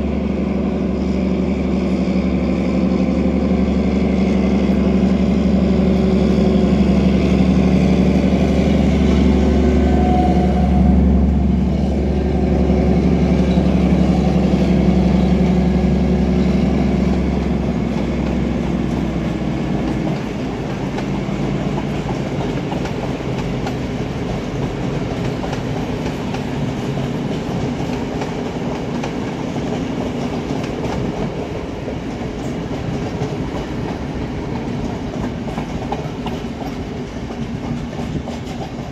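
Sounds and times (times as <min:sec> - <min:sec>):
diesel locomotive engines droning: 0:00.0 - 0:38.9
train wheels clacking over rail joints: 0:12.7 - 0:38.9.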